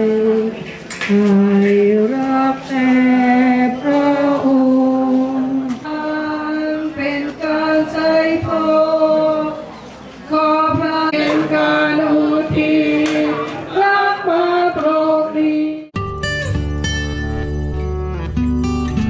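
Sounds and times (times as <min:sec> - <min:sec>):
choir singing a slow hymn: 0:01.4 - 0:15.9.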